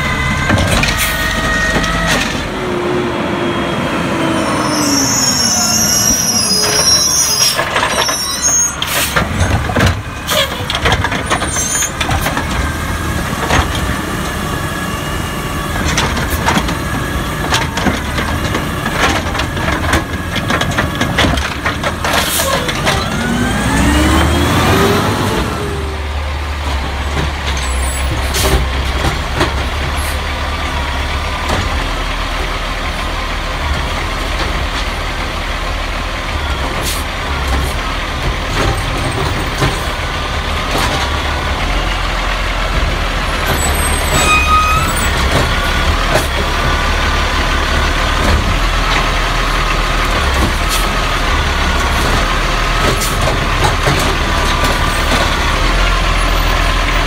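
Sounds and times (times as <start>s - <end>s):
garbage truck diesel hum: 0.0s - 57.0s
hiss and squeak: 4.5s - 9.2s.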